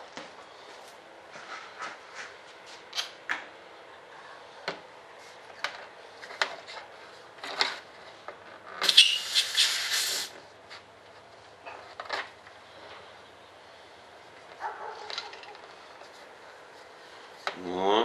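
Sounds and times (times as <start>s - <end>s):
short loud hiss: 8.8s - 10.3s.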